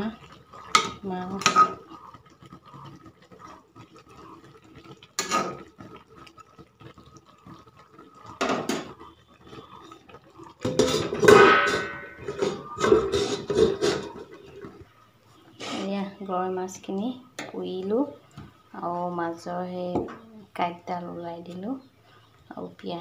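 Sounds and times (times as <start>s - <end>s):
metal spatula scraping a steel pan: 0.7s - 1.8s, 10.6s - 14.3s
steel lid clattering on a pan: 10.6s - 14.3s.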